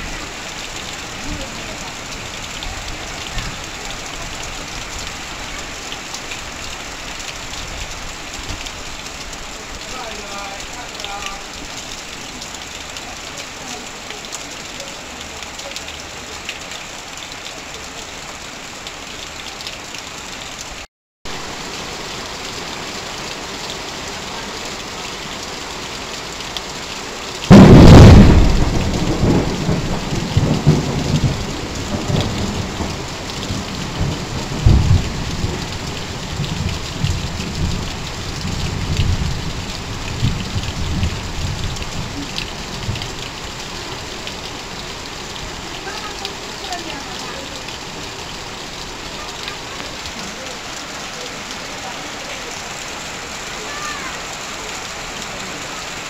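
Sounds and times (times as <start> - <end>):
heavy rain on metal roof: 0.0 - 56.0
water streaming off roof edge: 0.0 - 56.0
loud thunderclap: 27.5 - 35.6
thunder rumbling: 27.5 - 43.2.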